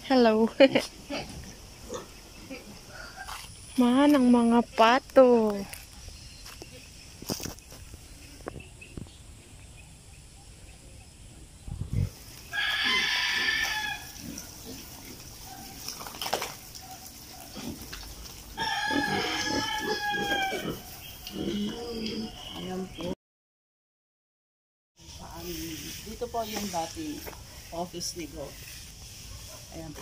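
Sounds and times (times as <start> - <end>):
rooster crowing: 12.5 - 14.2, 18.6 - 21.0.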